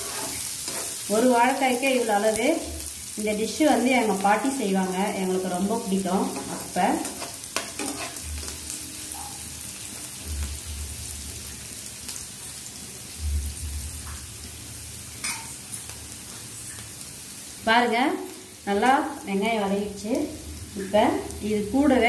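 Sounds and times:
metal spatula stirring: 0.0 - 1.2, 6.2 - 8.6
onions sizzling in hot oil: 0.0 - 22.0.

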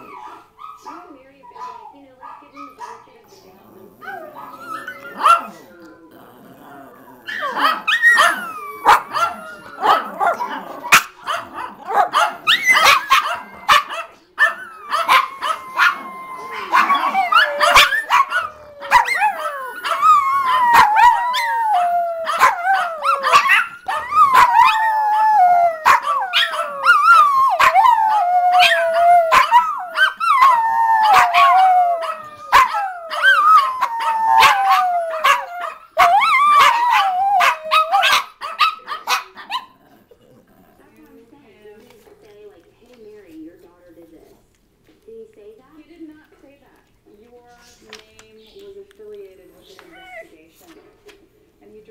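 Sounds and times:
dogs barking and yipping: 0.0 - 3.1, 4.0 - 5.7, 7.2 - 40.6
dogs howling: 3.6 - 41.0.

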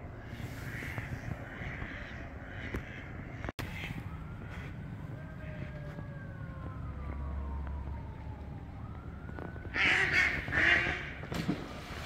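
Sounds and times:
siren-like wail: 3.6 - 11.3
ducks alarm calls: 9.8 - 11.1.

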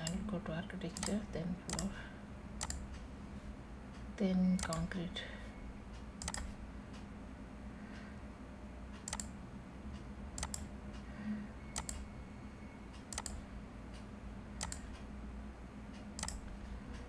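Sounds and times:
steady low hum: 0.0 - 17.0
computer mouse clicking: 1.0 - 1.9, 2.6 - 3.0, 4.6 - 4.9, 6.2 - 6.5, 9.0 - 9.4, 10.4 - 10.7, 11.8 - 12.0, 13.0 - 13.4, 14.0 - 15.1, 16.2 - 17.0.

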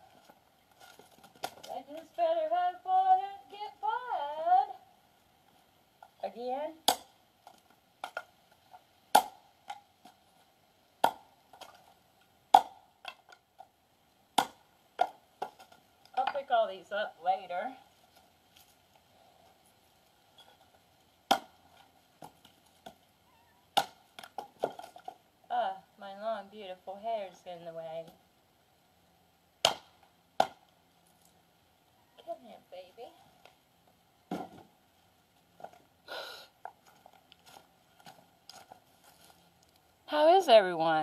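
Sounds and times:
hatchet striking wood: 9.1 - 9.8, 11.0 - 11.3, 12.5 - 13.2, 14.4 - 16.4, 21.3 - 21.6, 23.8 - 24.9, 29.6 - 30.6
footsteps through dry leaves: 36.9 - 39.5.

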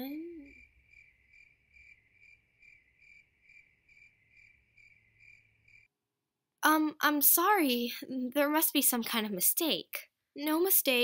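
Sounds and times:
crickets chirping: 0.3 - 5.9.

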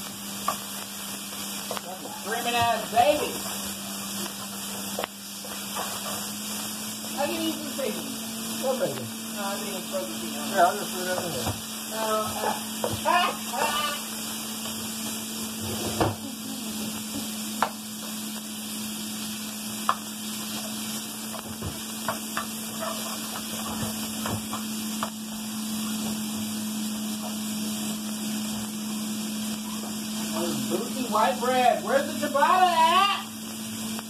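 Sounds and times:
bacon sizzling in a frying pan: 0.0 - 34.0
spatula scraping a pan: 5.4 - 6.5, 20.4 - 24.8.

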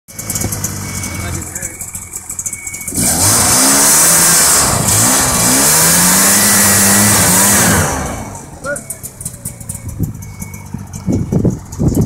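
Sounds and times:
snowmobile engine revving: 2.9 - 8.8
track churning in snow: 3.0 - 8.5.

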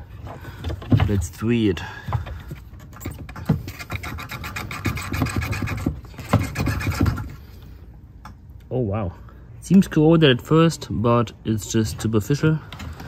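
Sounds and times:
rasping scrape: 2.8 - 7.5.

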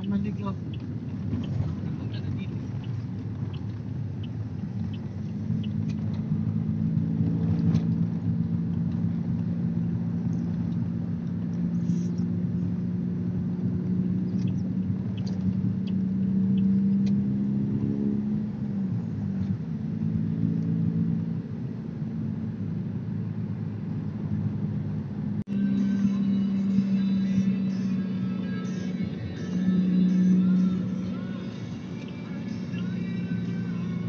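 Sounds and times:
vehicle engine hum inside cabin: 0.0 - 34.0.

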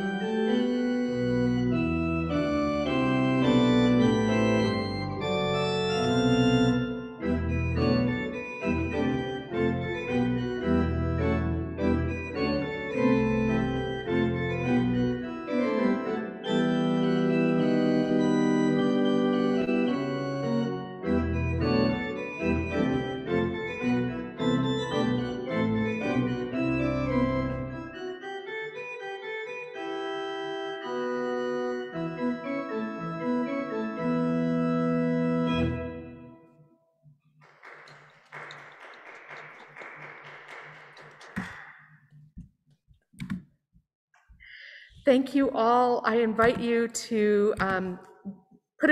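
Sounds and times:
pipe organ playing chords: 0.0 - 36.6.

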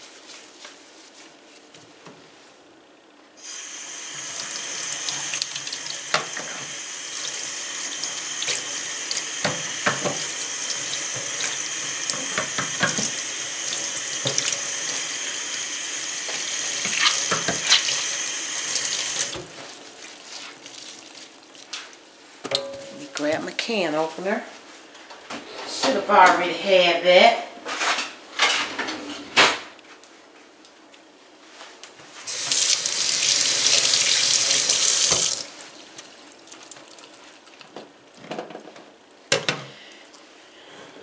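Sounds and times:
tap running into steel sink: 9.4 - 10.3.

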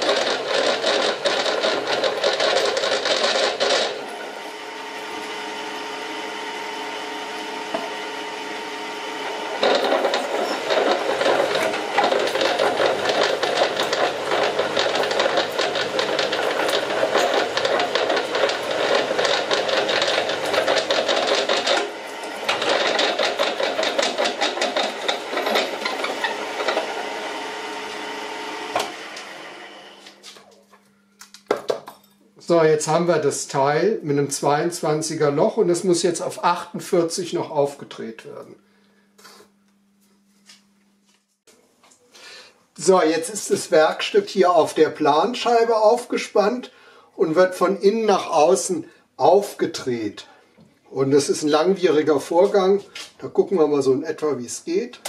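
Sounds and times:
pillar drill cutting metal: 0.0 - 30.1
drill motor hum: 0.0 - 30.2.

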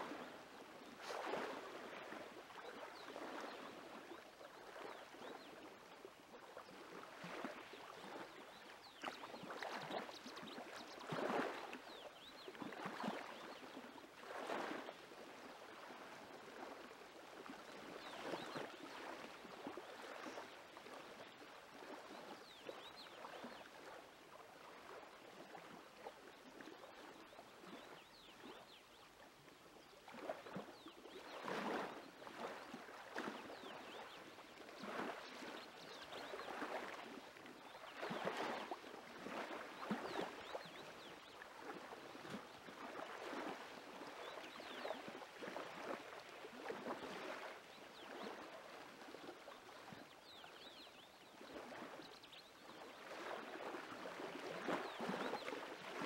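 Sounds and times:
lake waves lapping on shore: 0.0 - 56.0.

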